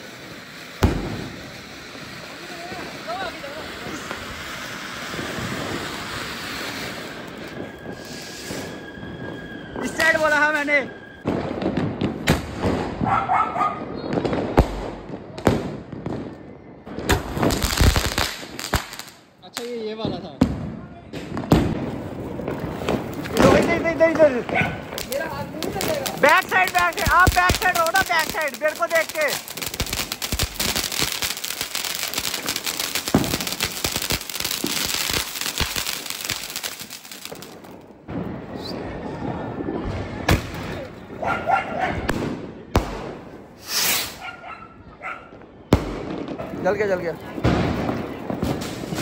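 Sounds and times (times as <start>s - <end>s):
fireworks crackling: 0.0s - 41.3s, 42.0s - 44.3s, 45.3s - 49.0s
sharp firecracker bangs: 0.8s - 1.5s, 16.9s - 39.0s, 42.0s - 44.2s, 45.7s - 49.0s.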